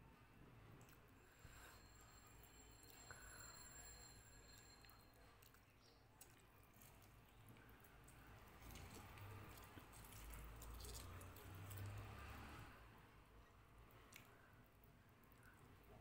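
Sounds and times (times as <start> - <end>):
wet squishing of hands in food: 5.4 - 12.7, 13.5 - 16.0.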